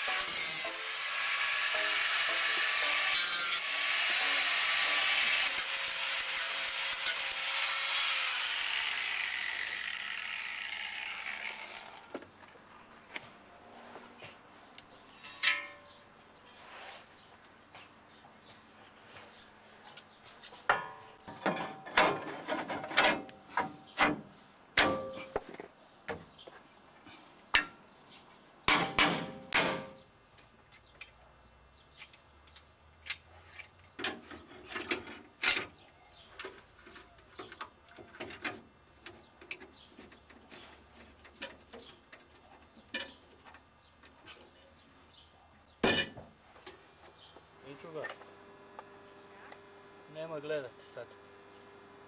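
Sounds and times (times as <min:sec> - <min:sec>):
metal tools clanking on steel: 0:15.0 - 0:16.1, 0:20.7 - 0:24.2, 0:24.8 - 0:25.4, 0:31.9 - 0:35.8, 0:42.7 - 0:43.2, 0:45.8 - 0:46.2.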